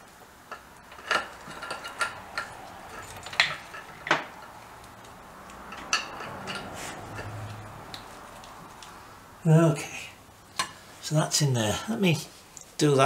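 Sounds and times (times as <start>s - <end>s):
metal parts and tools clinking: 0.5s - 7.7s.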